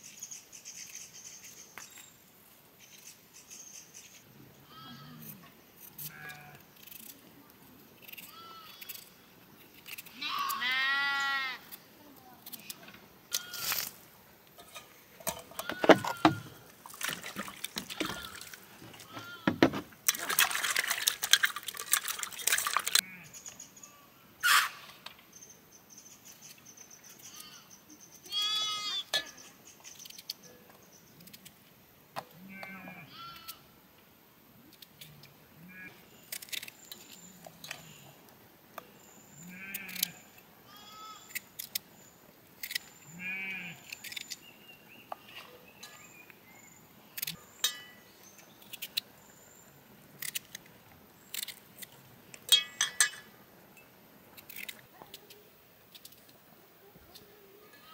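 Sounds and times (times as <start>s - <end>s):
sheep bleating: 10.2s - 11.6s, 28.3s - 29.1s.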